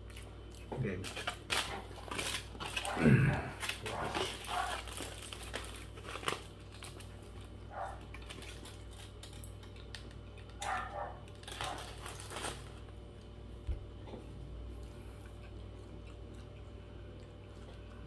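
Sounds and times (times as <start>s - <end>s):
foil wrapper crinkling: 0.0s - 13.0s
man chewing food: 0.0s - 18.0s.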